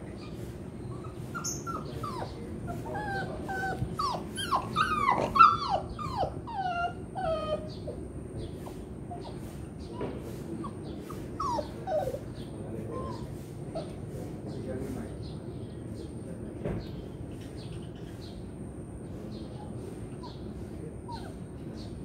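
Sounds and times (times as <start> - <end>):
dog whining and whimpering: 0.2 - 8.1, 9.1 - 14.0, 20.1 - 21.7.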